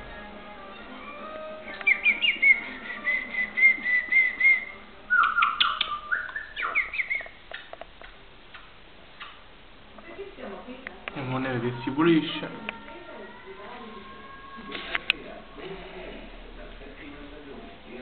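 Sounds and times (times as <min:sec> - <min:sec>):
budgerigar chirping: 0:01.7 - 0:07.7.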